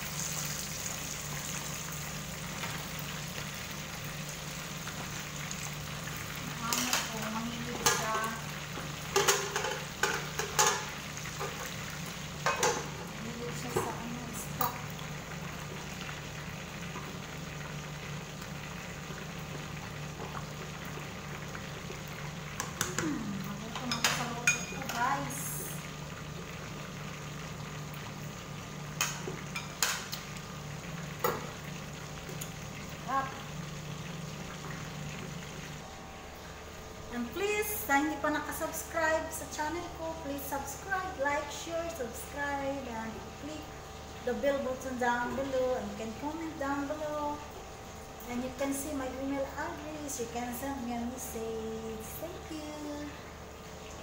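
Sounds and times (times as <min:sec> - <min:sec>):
fish sizzling in hot oil: 0:00.0 - 0:54.0
utensils clinking on cookware: 0:09.1 - 0:11.7, 0:12.4 - 0:12.9, 0:23.7 - 0:25.0.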